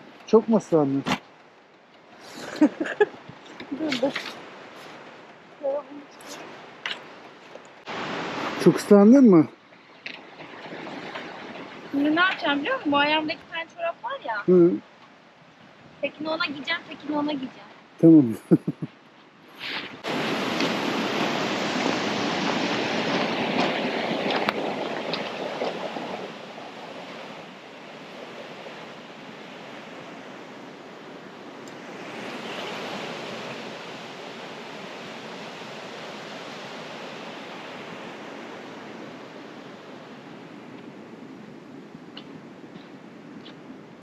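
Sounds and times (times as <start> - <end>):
stream water rushing over stones: 2.8 - 15.3, 19.6 - 29.8.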